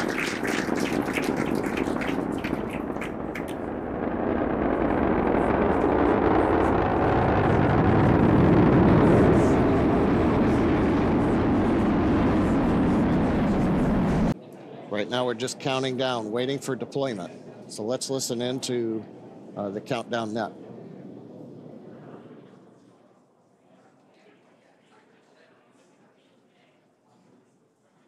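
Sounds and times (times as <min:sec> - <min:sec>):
rocket engine crackling: 0:00.0 - 0:14.4
rocket engine rumble: 0:00.0 - 0:14.4, 0:18.3 - 0:22.8.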